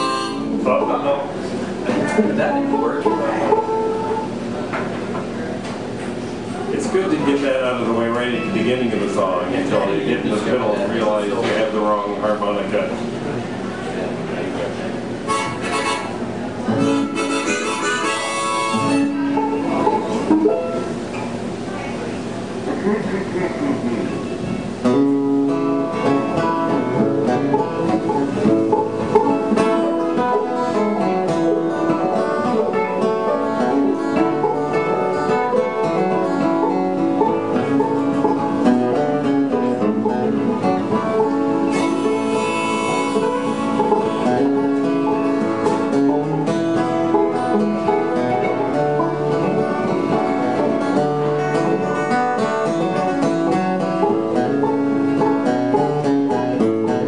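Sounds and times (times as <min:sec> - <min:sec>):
banjo picking: 0:00.0 - 0:05.4, 0:15.2 - 0:21.4, 0:22.7 - 0:57.0
mandolin: 0:00.0 - 0:13.1, 0:14.8 - 0:57.0
acoustic guitar strumming: 0:00.0 - 0:13.2, 0:14.9 - 0:57.0.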